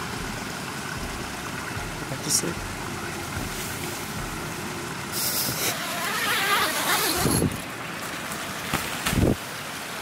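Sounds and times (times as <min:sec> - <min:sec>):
low thump: 0:02.6 - 0:04.6
tent door unzipping: 0:05.2 - 0:07.6.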